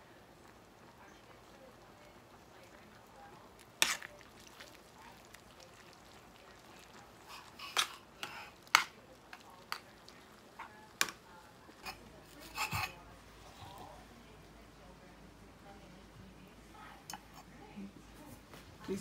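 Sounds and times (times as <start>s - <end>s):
metal spoon stirring meat mixture: 2.9s - 13.0s.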